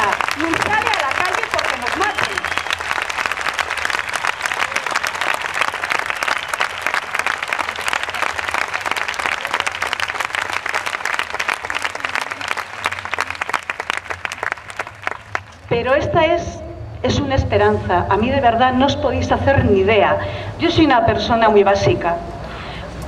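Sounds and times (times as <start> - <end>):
crowd applauding: 0.0 - 15.7.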